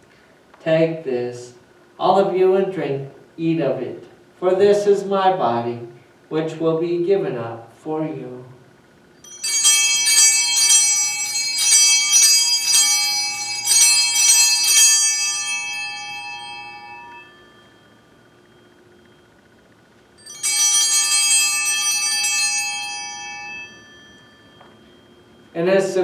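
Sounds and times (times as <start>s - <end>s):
altar bells ringing: 9.2s - 26.0s.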